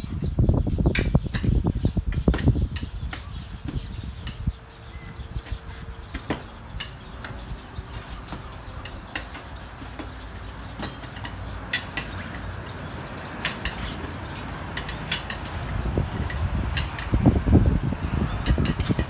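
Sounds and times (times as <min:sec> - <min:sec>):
metal tools clinking: 0:00.0 - 0:00.2.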